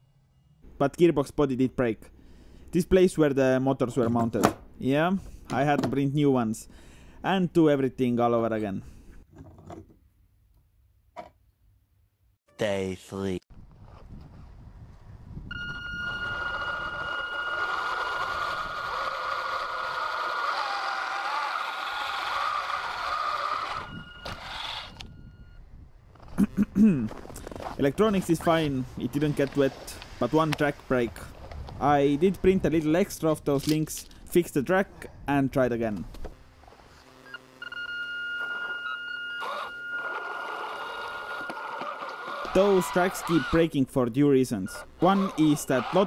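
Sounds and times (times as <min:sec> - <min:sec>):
electric motors whining: 0:15.5 - 0:26.4, 0:36.1 - 0:43.6, 0:44.8 - 0:46.0
rough mechanical noise: 0:15.5 - 0:32.6, 0:36.1 - 0:43.7, 0:44.8 - 0:46.0.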